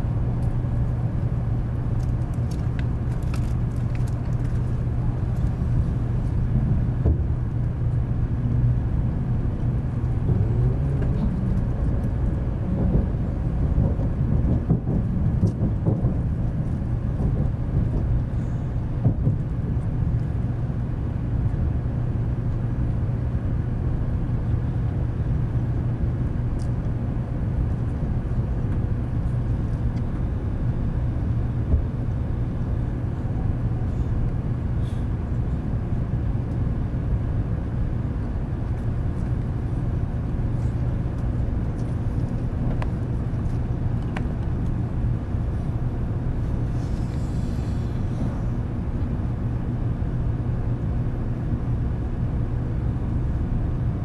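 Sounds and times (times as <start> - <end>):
train cabin rumble and hum: 0.0 - 54.0.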